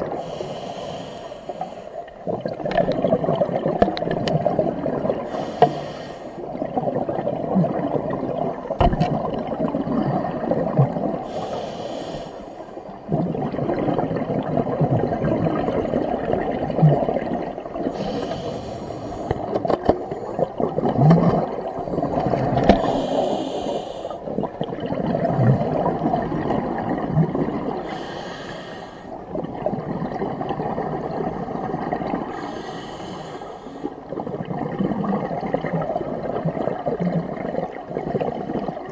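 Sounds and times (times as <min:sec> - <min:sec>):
regulator hiss on inhale: 0:00.0 - 0:02.0, 0:05.3 - 0:06.4, 0:11.3 - 0:12.8, 0:17.9 - 0:19.6, 0:22.7 - 0:24.3, 0:27.8 - 0:29.2, 0:32.3 - 0:34.0
exhaled bubbles gurgling underwater: 0:00.0 - 0:38.9.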